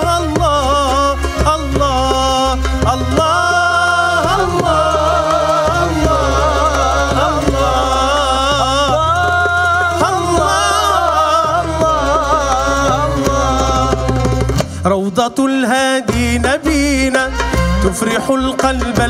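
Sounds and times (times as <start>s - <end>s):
instrumental accompaniment with bass: 0.0s - 19.0s.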